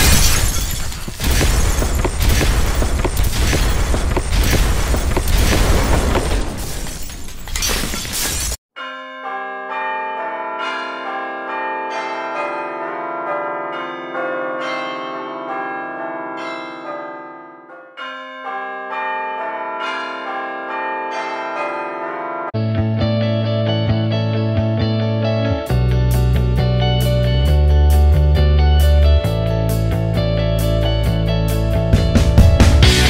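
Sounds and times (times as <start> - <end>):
crashing shattering sound effect: 0.0 - 8.6
slow bell-like chiming music: 8.8 - 22.6.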